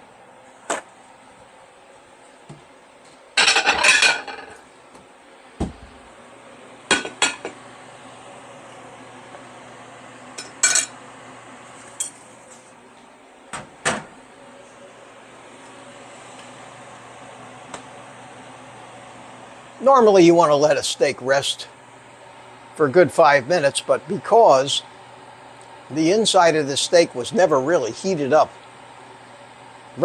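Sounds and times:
dishes and cutlery clattering: 0:03.4 - 0:04.6.

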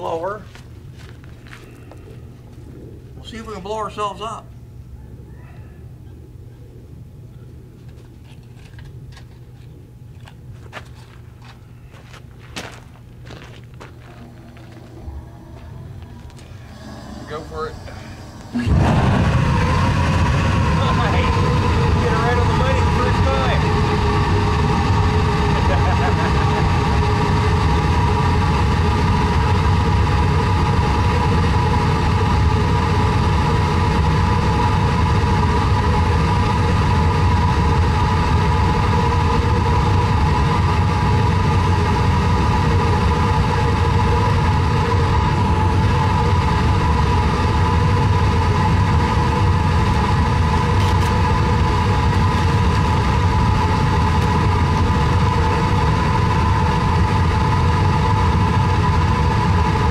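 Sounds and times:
furnace air rumble: 0:00.0 - 0:59.9
shop vacuum motor whine: 0:13.8 - 0:59.9.

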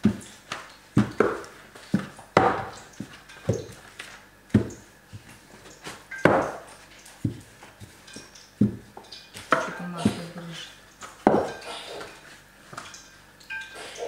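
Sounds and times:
rolling pin knocking on dough: 0:01.0 - 0:03.8, 0:04.5 - 0:05.3, 0:06.2 - 0:08.0.

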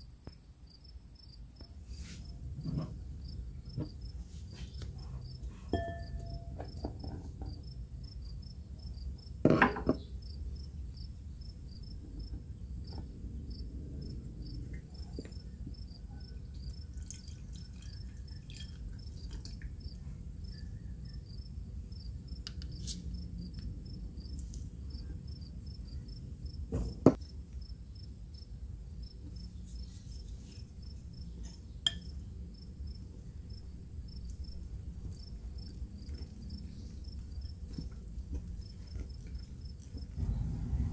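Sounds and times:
cricket chirping: 0:00.0 - 0:02.4, 0:03.1 - 0:09.4, 0:10.0 - 0:40.4
low room hum: 0:00.0 - 0:40.9
sharp clink: 0:05.8 - 0:06.6.

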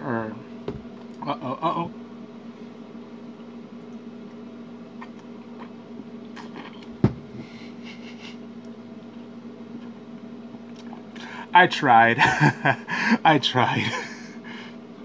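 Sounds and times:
steady low hum: 0:00.0 - 0:15.0
dull thump: 0:07.0 - 0:07.3.

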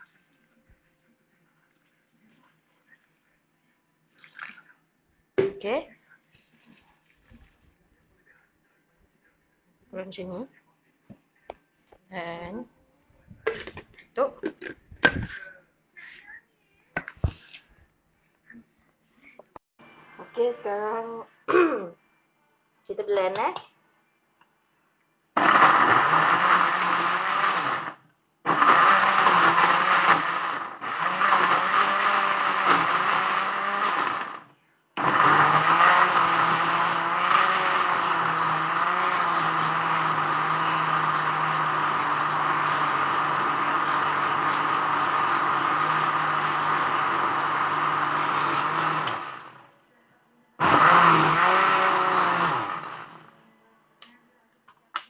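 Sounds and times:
electric blender running: 0:25.4 - 0:49.7, 0:50.6 - 0:53.3.

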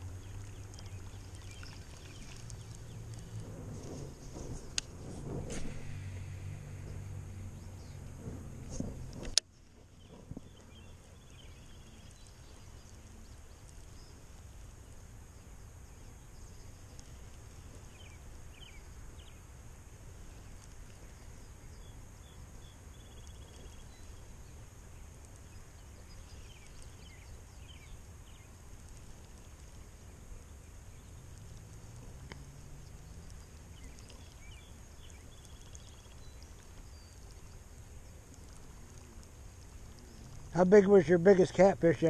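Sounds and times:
wind rumble on microphone: 0:00.0 - 0:41.0
faint high hiss: 0:00.0 - 0:42.0.

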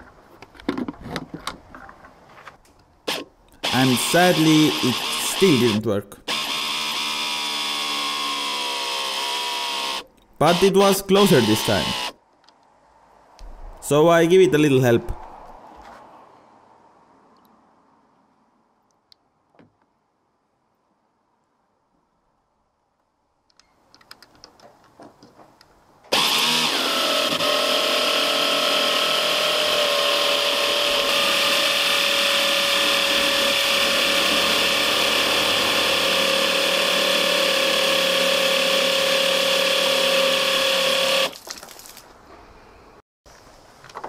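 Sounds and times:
electric motor pump whining: 0:03.1 - 0:12.2, 0:26.1 - 0:41.4.

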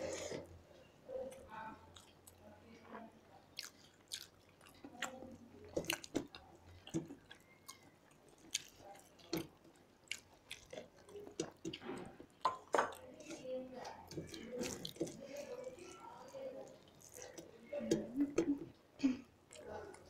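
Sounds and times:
wet chewing and mouth smacks: 0:03.6 - 0:13.1, 0:13.8 - 0:17.6.

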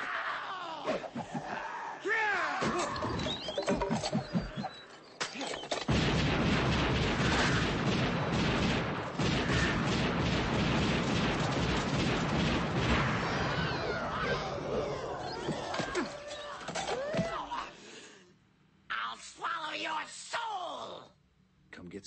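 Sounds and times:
shotgun blasts: 0:05.9 - 0:13.9
creature shrieking: 0:13.2 - 0:17.7.

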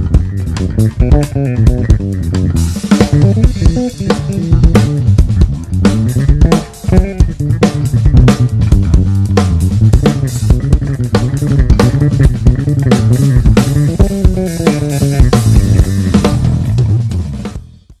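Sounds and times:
plucked bass guitar: 0:00.0 - 0:17.7
drum kit: 0:00.0 - 0:18.0.

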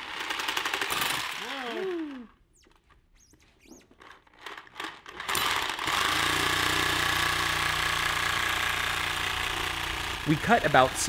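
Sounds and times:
reciprocating saw cutting rubber: 0:02.5 - 0:04.3.

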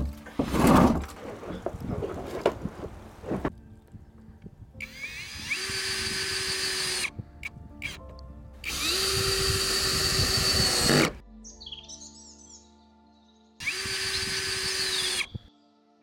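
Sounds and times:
cordless drill driving screws: 0:04.8 - 0:07.1, 0:08.6 - 0:11.2, 0:13.6 - 0:15.5.

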